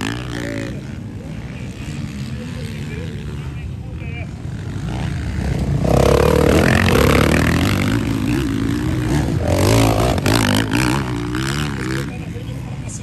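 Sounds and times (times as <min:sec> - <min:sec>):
dirt bike engines revving: 0:00.0 - 0:13.0.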